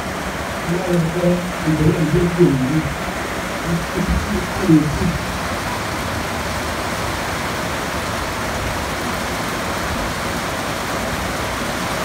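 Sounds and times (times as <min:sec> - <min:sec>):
steady rushing noise: 0:00.0 - 0:07.2.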